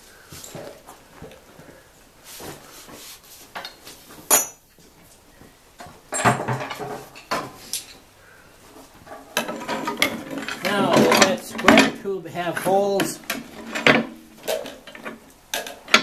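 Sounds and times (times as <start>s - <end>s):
metal clatter: 9.1s - 12.0s, 13.1s - 16.0s
metal parts clinking and clanking: 9.1s - 12.0s, 13.1s - 16.0s.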